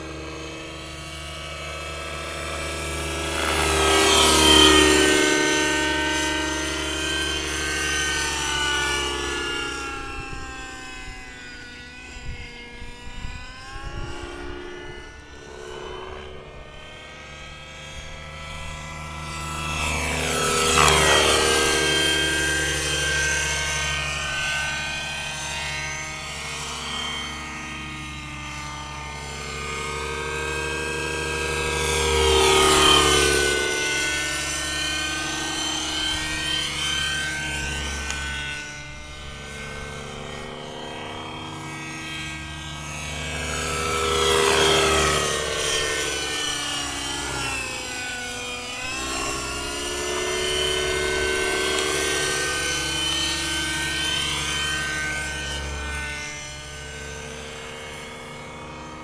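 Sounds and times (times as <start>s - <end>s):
model helicopter engine and rotors: 0.0s - 59.0s.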